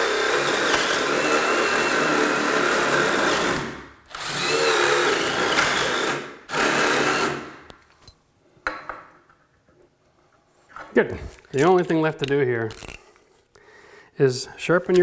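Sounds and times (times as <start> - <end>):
electric power tool grinding: 0.0 - 7.7.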